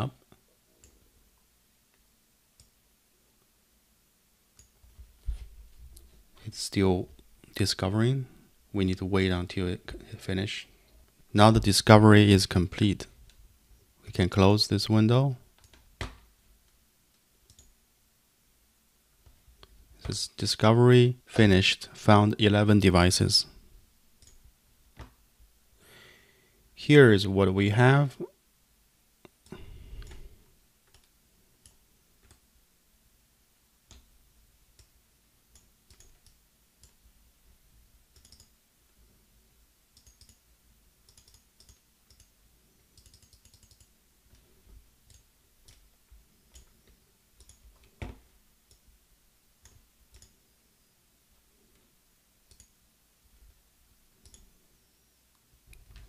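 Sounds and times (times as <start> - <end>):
computer mouse clicks: 4.6 - 4.8, 15.6 - 17.8, 24.2 - 24.4, 34.8 - 37.0, 38.1 - 38.6, 39.9 - 40.4, 41.0 - 45.9, 46.5 - 48.1, 48.7 - 48.9, 49.6 - 50.4, 52.5 - 52.8, 54.2 - 54.5.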